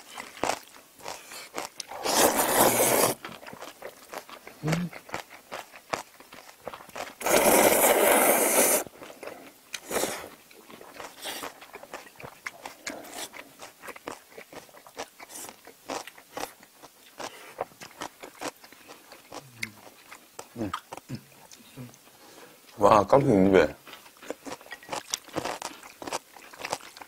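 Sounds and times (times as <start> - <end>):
close chewing with crunches: 0.0 - 27.0
loud noodle slurp: 1.9 - 3.2, 7.2 - 8.9, 9.8 - 10.3.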